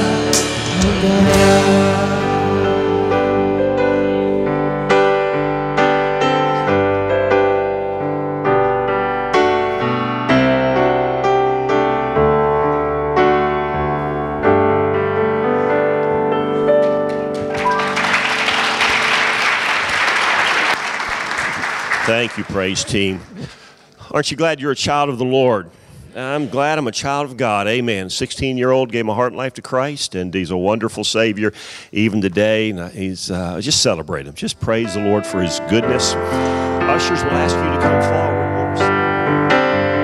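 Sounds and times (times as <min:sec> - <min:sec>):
piano chords: 0:00.0 - 0:23.9, 0:34.5 - 0:40.0
congregation applauding: 0:16.8 - 0:23.5.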